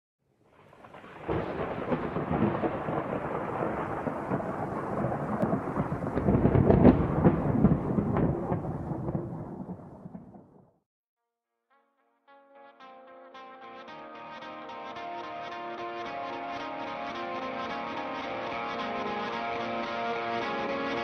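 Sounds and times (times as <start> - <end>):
thunder rolling: 0.6 - 10.8.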